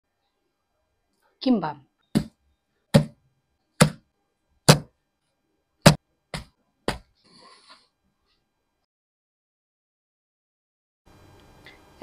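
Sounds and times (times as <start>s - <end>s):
thuds on wooden board: 2.9s - 3.2s, 3.8s - 4.0s, 4.7s - 4.9s.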